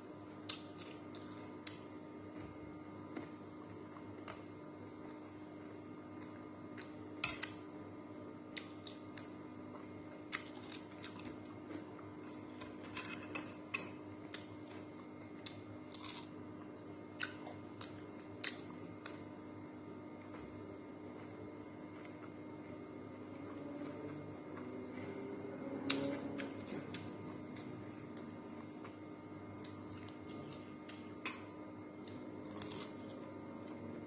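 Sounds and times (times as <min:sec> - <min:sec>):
crunching fried fish: 0:15.8 - 0:16.4, 0:32.4 - 0:33.2.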